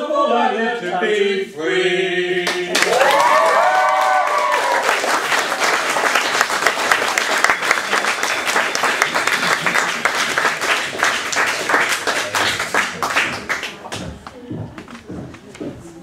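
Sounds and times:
audience applauding: 0:02.5 - 0:14.4.

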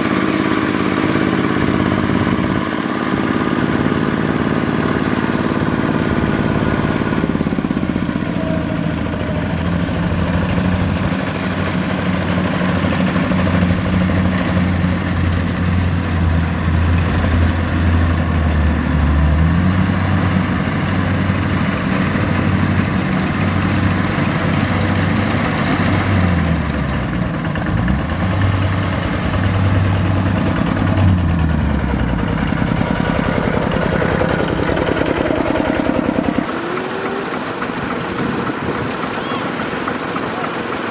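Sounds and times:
walking tractor diesel engine: 0:00.0 - 0:40.9.

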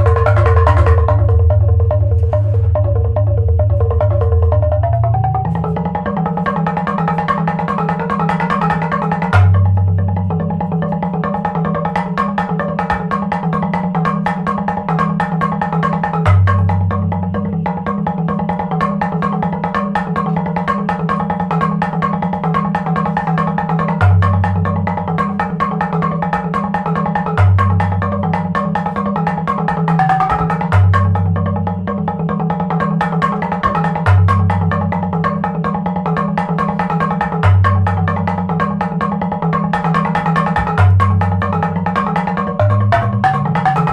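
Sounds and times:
deep low percussion note: 0:00.0 - 0:07.0, 0:08.8 - 0:11.8
repeated mallet-struck notes: 0:00.0 - 0:43.9.

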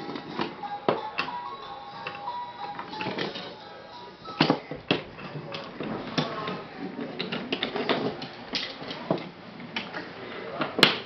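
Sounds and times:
wooden toy trains clattering: 0:04.3 - 0:10.0.

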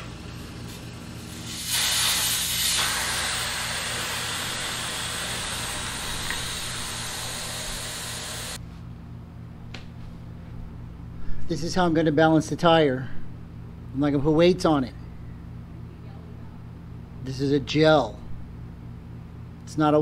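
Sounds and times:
air hissing out of tire: 0:00.0 - 0:08.6.

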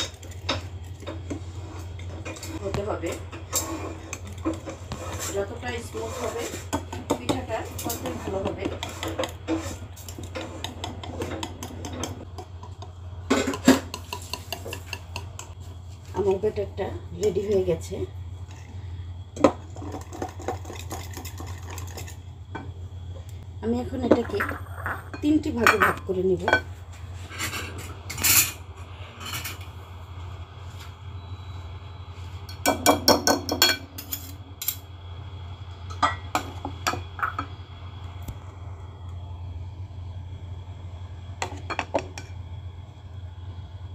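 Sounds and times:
low hum: 0:21.3 - 0:32.6, 0:34.0 - 0:43.9.

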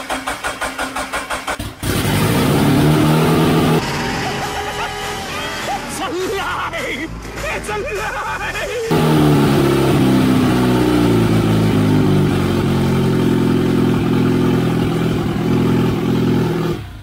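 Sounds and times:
loud car engine running: 0:01.5 - 0:04.0, 0:08.9 - 0:17.0.

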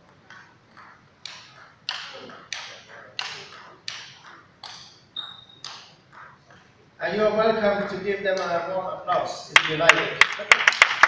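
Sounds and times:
paddle hitting ping pong ball: 0:00.0 - 0:09.3
ball bouncing on table: 0:00.1 - 0:06.8, 0:07.7 - 0:09.3.

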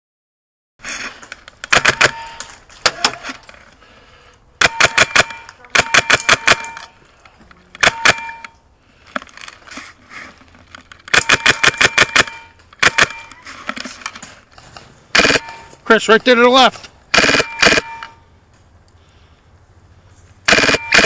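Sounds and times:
airsoft gun firing bursts: 0:01.7 - 0:02.4, 0:04.6 - 0:06.9, 0:11.1 - 0:13.3, 0:15.1 - 0:15.7, 0:17.1 - 0:18.2, 0:20.5 - 0:21.0.

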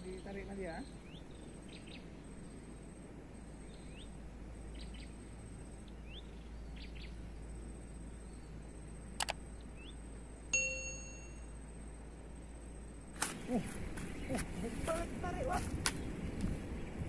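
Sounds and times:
bird chirping: 0:00.0 - 0:12.1
outdoor background noise: 0:00.0 - 0:17.0
sharp double click: 0:09.2 - 0:09.4
bright ringing ding: 0:10.5 - 0:11.6.

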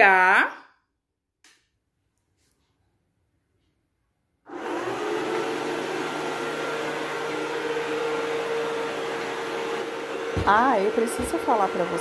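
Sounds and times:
robot vacuum humming: 0:04.5 - 0:12.0.

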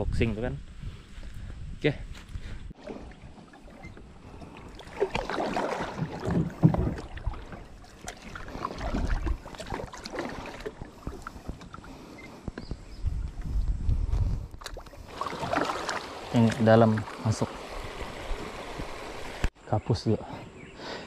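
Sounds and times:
paddle splashing in water: 0:02.8 - 0:12.3, 0:14.6 - 0:19.5.

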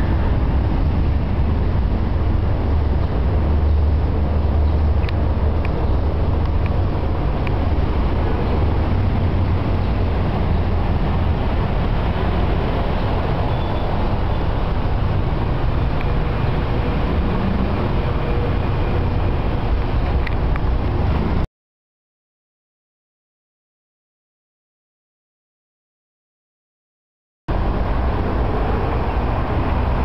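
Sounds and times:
road traffic rumble: 0:00.0 - 0:21.5, 0:27.5 - 0:30.0.

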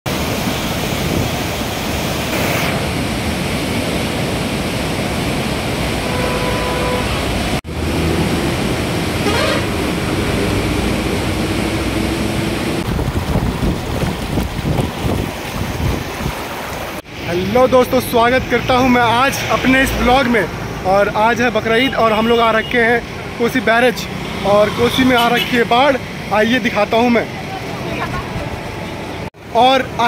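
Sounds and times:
floodwater rushing roar: 0:00.1 - 0:30.0
vehicle horn toot: 0:06.0 - 0:07.3, 0:09.2 - 0:09.8
wind on microphone: 0:09.8 - 0:17.0.

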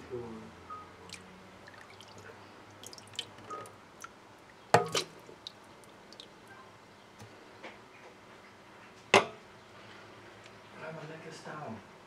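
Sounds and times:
water dripping in a wok: 0:01.0 - 0:06.6.

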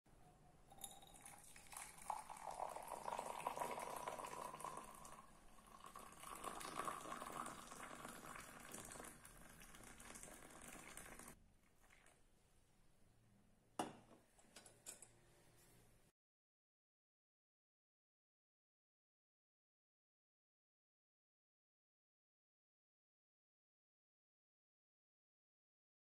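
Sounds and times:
liquid pouring into a glass: 0:00.7 - 0:12.2.

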